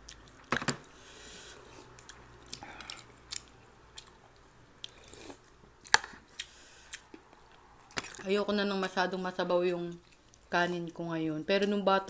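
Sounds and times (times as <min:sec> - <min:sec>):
chewing food: 0:01.8 - 0:08.2.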